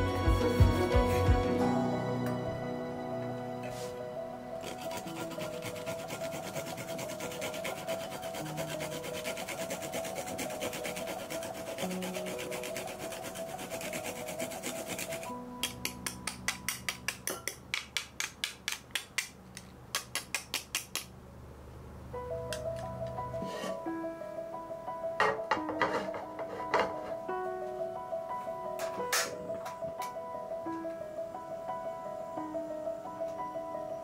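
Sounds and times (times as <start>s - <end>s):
soft background music: 0.0s - 17.9s, 22.1s - 34.0s
garlic rasping on grater: 4.6s - 15.3s.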